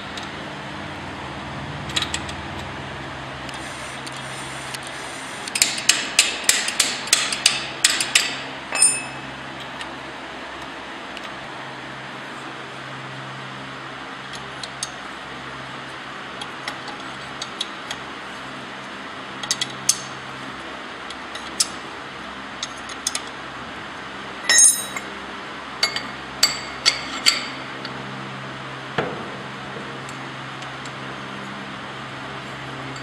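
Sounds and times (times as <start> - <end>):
fan-like hum: 0.0 - 33.0
metal parts clinking and knocking: 8.7 - 9.2, 24.5 - 25.1.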